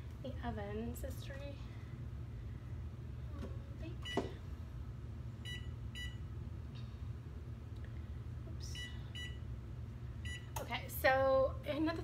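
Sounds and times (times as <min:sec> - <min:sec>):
oven control panel beeps: 0:05.4 - 0:06.2, 0:08.8 - 0:09.4, 0:10.2 - 0:10.6.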